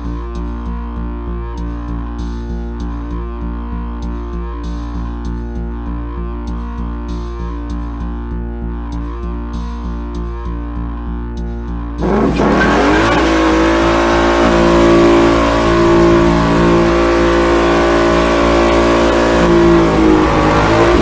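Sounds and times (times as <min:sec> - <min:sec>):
car engine revving: 0:12.0 - 0:21.0.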